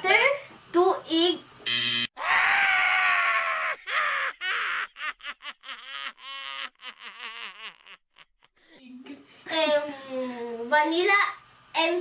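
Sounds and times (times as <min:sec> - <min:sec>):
girls laughing: 0:03.4 - 0:08.7.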